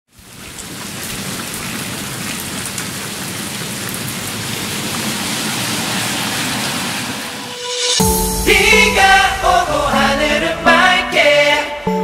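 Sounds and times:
steady rain falling: 0:00.1 - 0:07.5.

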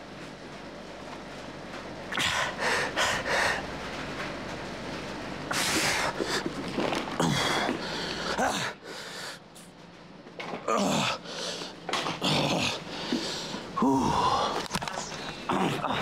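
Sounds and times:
man breathing hard: 0:02.1 - 0:03.7, 0:07.2 - 0:09.5, 0:11.0 - 0:11.8, 0:12.6 - 0:15.5
man grunting: 0:08.3 - 0:08.8, 0:10.7 - 0:11.3, 0:12.1 - 0:12.8, 0:13.8 - 0:14.7, 0:15.4 - 0:16.0.

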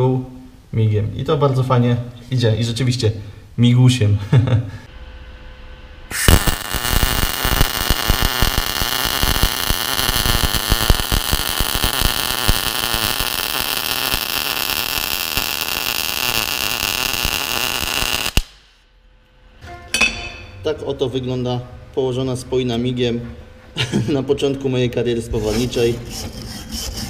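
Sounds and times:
welding arc crackling hiss: 0:06.1 - 0:18.8.

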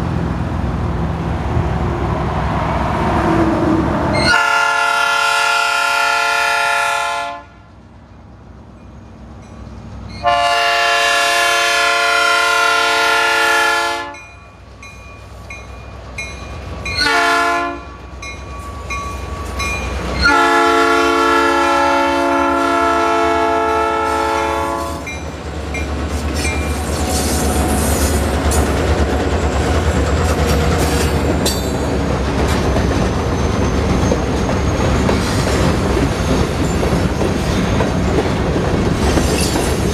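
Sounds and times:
diesel locomotive rumble: 0:00.0 - 0:39.9
locomotive air horn blasts: 0:04.2 - 0:07.6, 0:10.2 - 0:14.2, 0:17.0 - 0:17.9, 0:20.2 - 0:25.1
hopper cars rolling clatter: 0:25.1 - 0:39.9.

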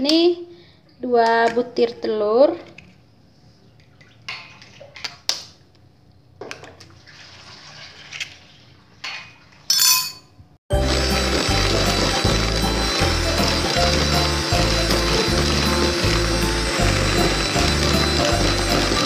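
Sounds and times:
electric hand mixer beating: 0:10.7 - 0:19.0.

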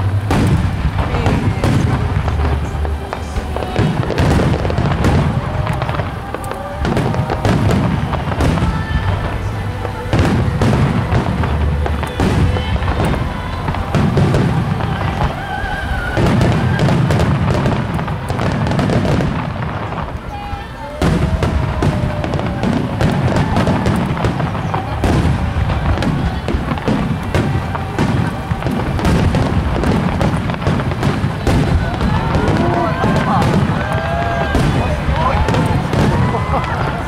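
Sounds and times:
soprano singing music: 0:00.0 - 0:18.6
fireworks booming: 0:00.0 - 0:37.0
fireworks crackling: 0:00.0 - 0:37.0.

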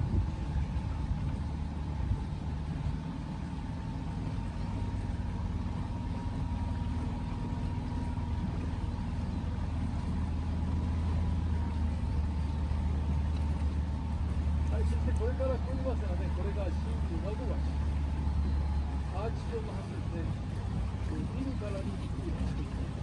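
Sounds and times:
outboard motor humming: 0:00.0 - 0:23.0.

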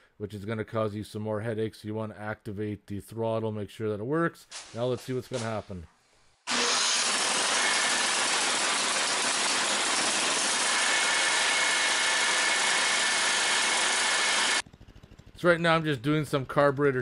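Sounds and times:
snowblower engine running: 0:06.5 - 0:15.9.

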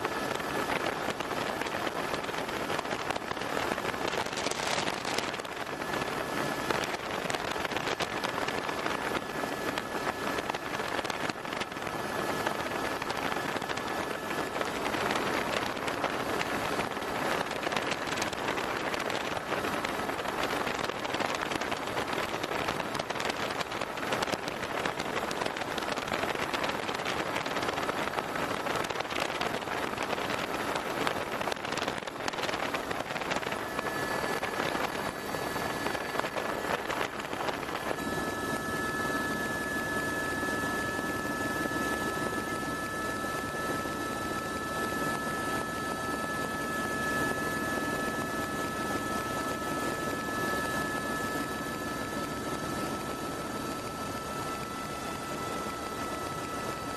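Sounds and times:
helicopter engine and rotor noise: 0:00.0 - 0:56.9
steady high whine: 0:00.0 - 0:56.9
wind rush: 0:00.0 - 0:56.9
crackling buffeting: 0:00.1 - 0:11.8.

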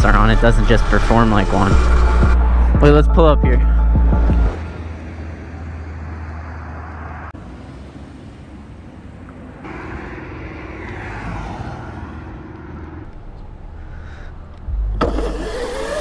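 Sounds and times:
wind and road noise: 0:00.0 - 0:16.0
steady tone: 0:09.6 - 0:15.2.

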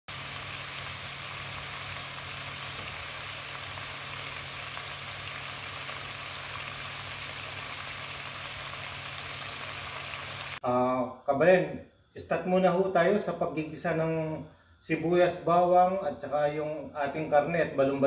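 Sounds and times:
meat sizzling in a pot: 0:00.1 - 0:10.8.

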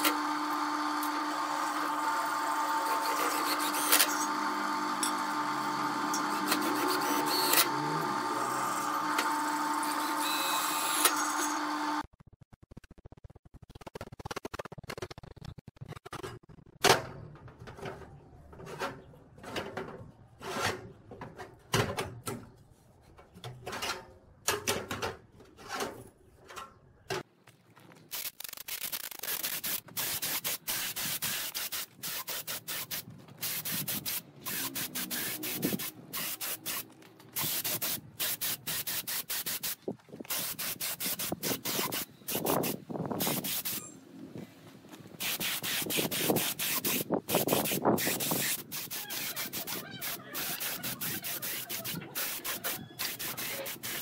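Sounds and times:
air spray gun hissing: 0:28.2 - 0:43.9, 0:45.2 - 0:54.0.

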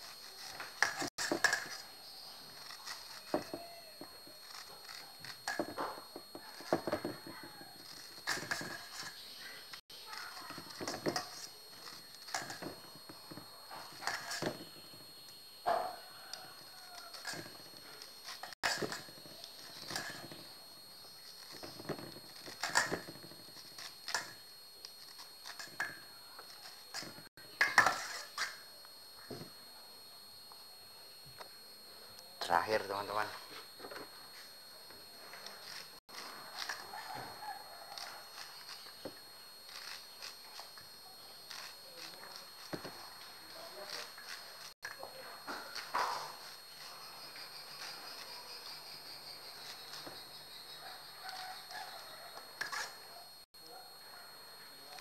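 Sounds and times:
hands working corn in steel bowl: 0:00.0 - 0:15.3, 0:15.9 - 0:28.6, 0:35.3 - 0:48.8.

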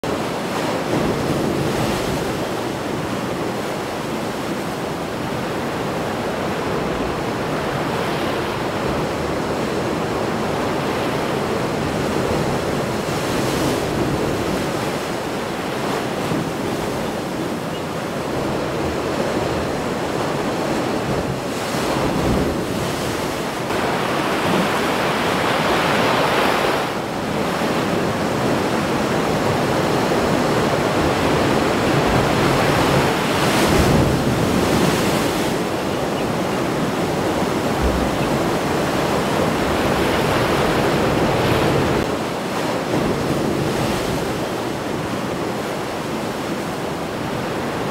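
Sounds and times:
wind: 0:00.0 - 0:47.9
storm surf crashing: 0:18.3 - 0:46.1.

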